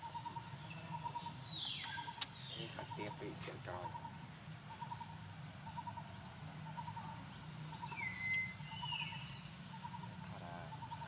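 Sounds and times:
short pulsed bird call: 7.8 - 11.0
whistled bird call sliding pitch: 7.9 - 9.1.

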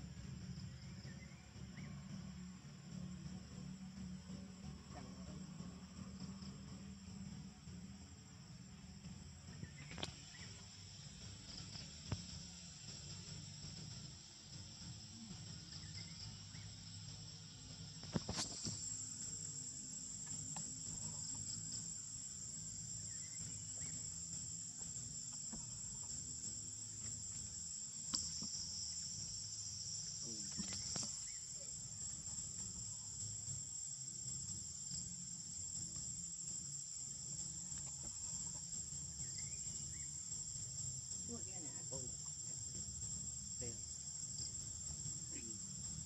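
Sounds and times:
insect chorus droning: 0.0 - 46.0
low steady rumble: 0.0 - 46.0.

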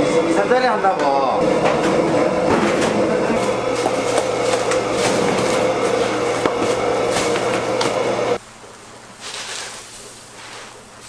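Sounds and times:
gas burner and extractor rushing: 0.0 - 8.4.

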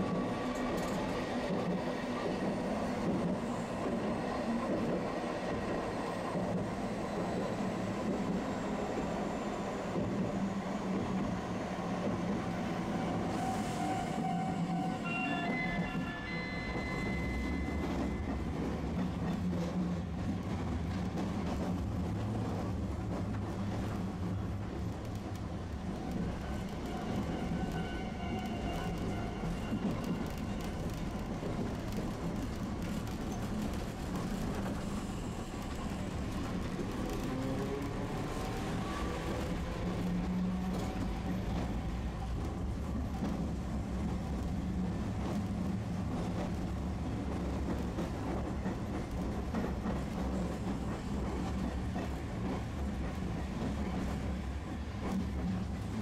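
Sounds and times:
streetcar rumbling on rails: 0.0 - 56.0
steady high tone: 14.9 - 18.4.

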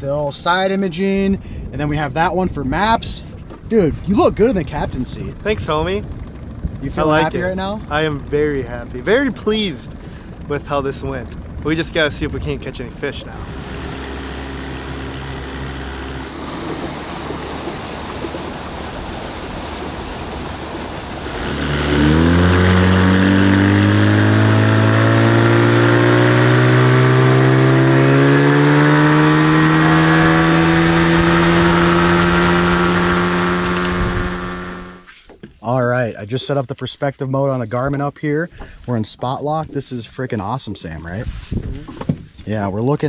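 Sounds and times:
rush of wind and water: 0.1 - 24.8
outboard motor running: 3.2 - 35.1.

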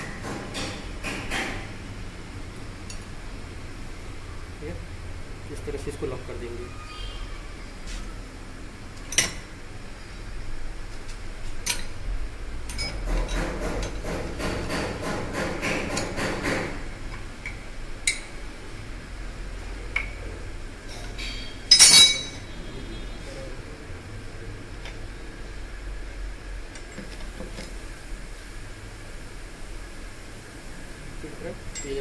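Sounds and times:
spanner clicking on metal nut: 11.6 - 12.0, 12.7 - 14.9.

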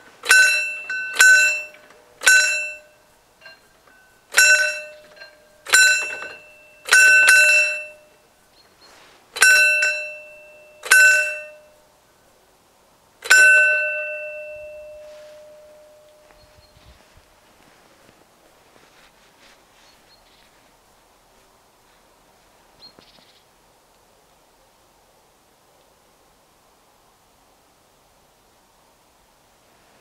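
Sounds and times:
level crossing bell strikes: 0.2 - 8.2, 9.4 - 11.8, 13.3 - 16.5.

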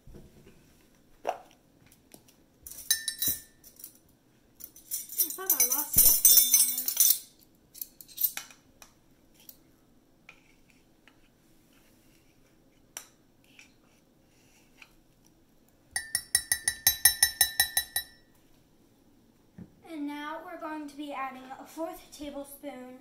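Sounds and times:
metal measuring spoons clinking: 2.7 - 4.0, 4.6 - 8.4, 16.0 - 18.3.

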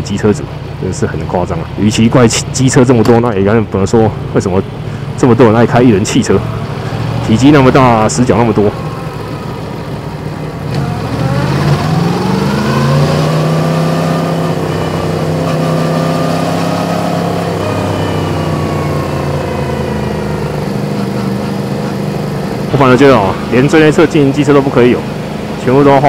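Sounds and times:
motorcycle engine revving: 5.8 - 26.0.

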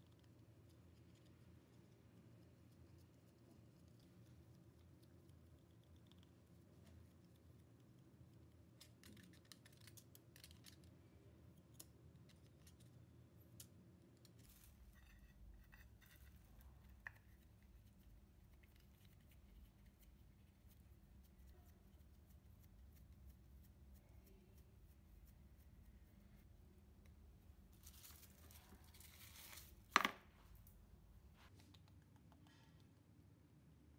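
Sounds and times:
light rustling of dough: 12.8 - 33.1.

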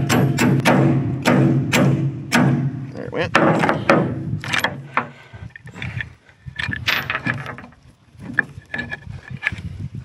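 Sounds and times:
metal clinks and scrapes: 4.4 - 9.6.

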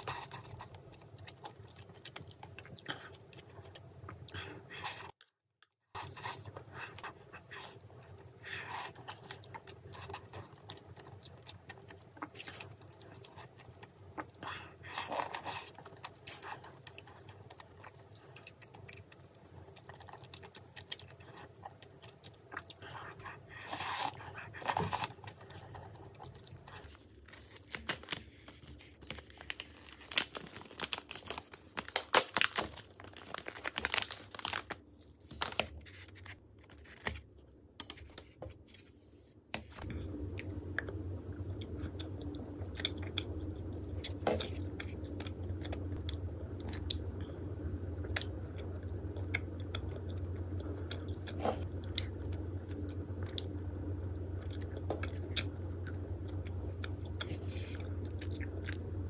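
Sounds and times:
low hum: 6.0 - 59.0
paper package crinkling: 26.7 - 39.0.

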